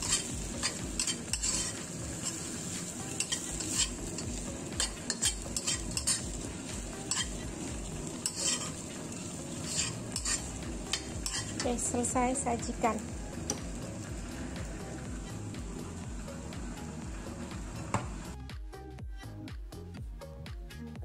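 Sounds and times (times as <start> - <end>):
metal spatula scraping a wok: 0.0 - 11.9
rice sizzling in a wok: 0.0 - 18.4.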